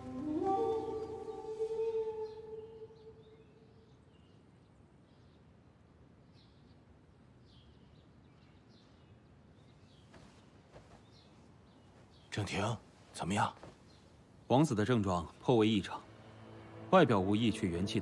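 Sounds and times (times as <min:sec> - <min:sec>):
birds chirping: 0:06.2 - 0:18.0.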